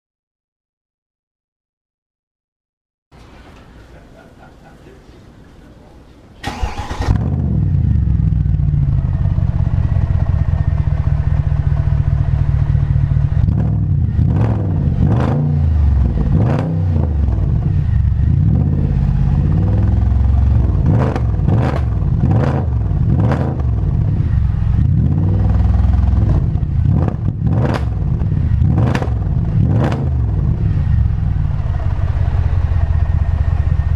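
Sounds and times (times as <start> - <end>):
car engine idling: 6.4 - 15.1, 17.1 - 33.9
engine throttle blips: 6.4 - 33.9.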